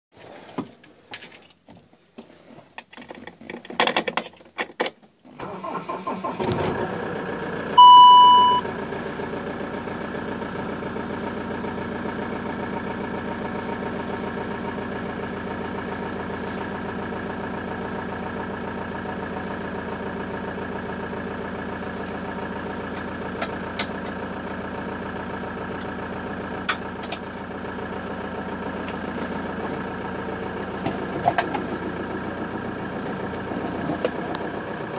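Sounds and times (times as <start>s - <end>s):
car engine cranking and idling: 0.7s - 34.9s
short electronic beep: 7.8s - 8.7s.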